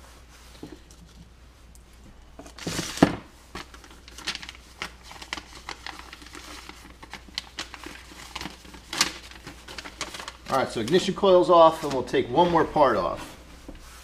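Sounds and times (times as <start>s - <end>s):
packet crinkling: 2.4s - 12.2s.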